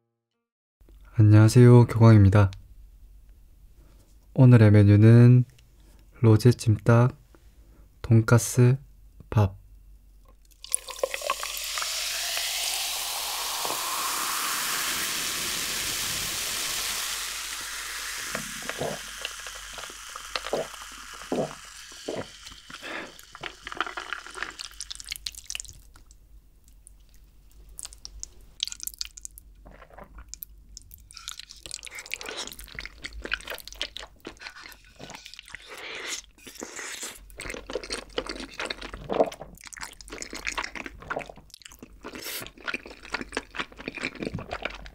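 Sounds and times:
soda pouring into a glass: 10.5 - 25.7
fizz crackling: 10.5 - 25.8
wet mouth sounds: 18.4 - 26.1, 26.8 - 44.9
eating sounds: 18.5 - 26.1, 26.9 - 44.9.

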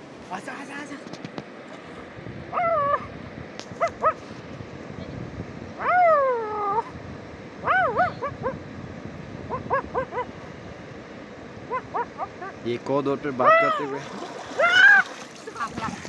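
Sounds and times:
dog yelping: 2.6 - 3.1, 3.8 - 4.2, 5.8 - 6.9, 7.6 - 8.6, 9.5 - 10.3, 11.7 - 12.6, 14.6 - 15.2
dog whining: 5.8 - 6.9, 7.6 - 8.6, 14.6 - 15.1.

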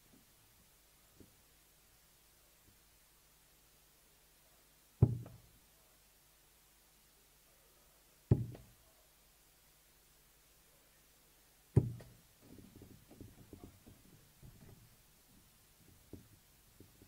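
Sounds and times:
darts hitting dartboard: 5.0 - 5.4, 8.3 - 8.7, 11.8 - 12.2
faint small knocks: 5.0 - 5.4, 11.8 - 17.0.

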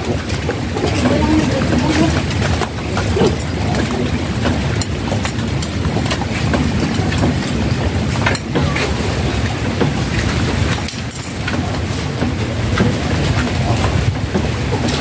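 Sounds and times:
raindrops tapping: 0.0 - 15.0.

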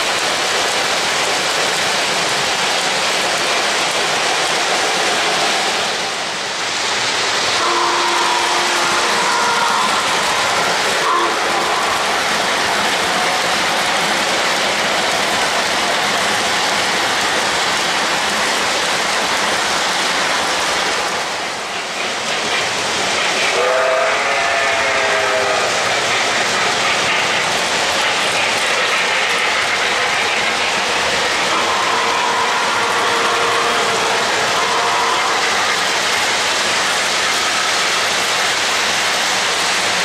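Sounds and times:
model trains rumbling on track: 0.0 - 40.0
model locomotive horn: 7.6 - 12.2, 23.5 - 25.8, 31.5 - 35.6.

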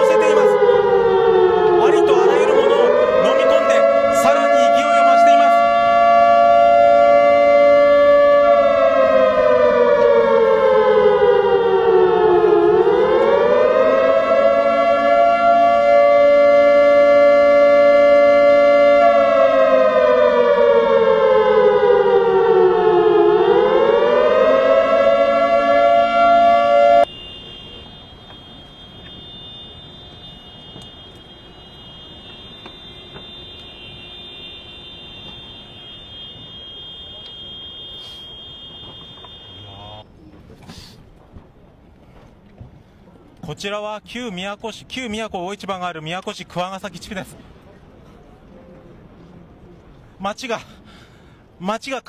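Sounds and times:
warning siren sliding in pitch: 0.0 - 40.0.

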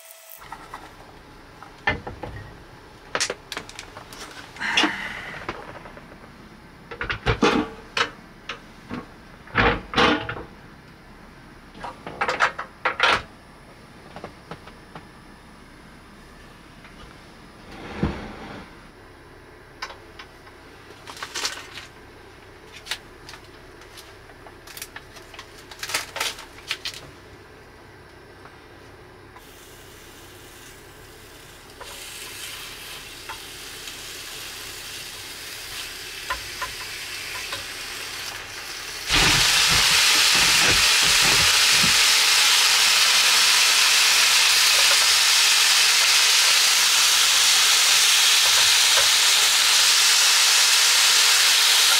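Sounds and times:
meat sizzling on hot plate: 29.4 - 51.9.

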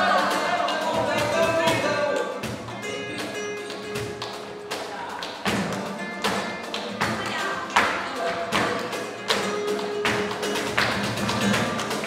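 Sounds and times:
cajon drum: 0.0 - 12.0
flamenco guitar: 0.0 - 12.0
hand clapping: 0.0 - 12.0.

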